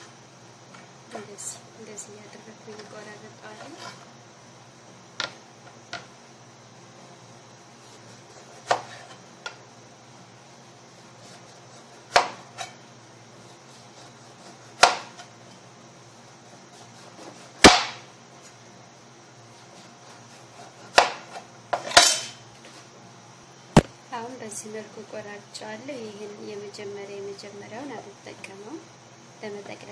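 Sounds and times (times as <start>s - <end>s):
knife cutting eggplant: 7.7s - 9.6s, 10.8s - 12.8s, 13.4s - 15.4s, 16.5s - 17.8s, 19.5s - 22.8s.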